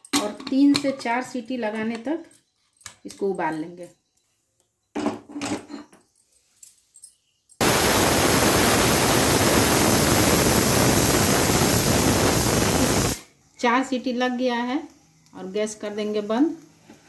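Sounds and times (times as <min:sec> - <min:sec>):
pressure cooker steam hissing: 0:07.6 - 0:13.2.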